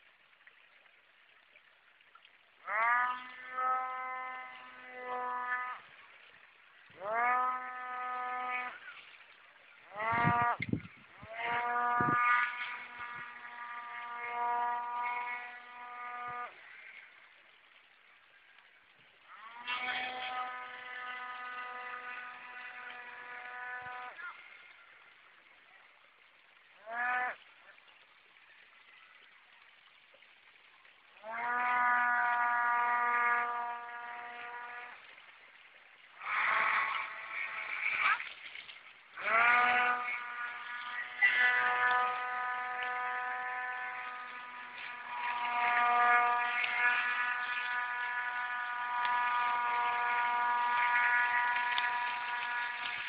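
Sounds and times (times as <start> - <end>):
electric motor and propeller whining: 39.3 - 53.0.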